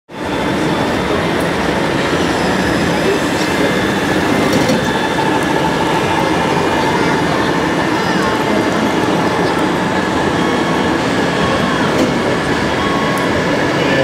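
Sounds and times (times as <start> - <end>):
rumbling hall noise: 0.1 - 14.0.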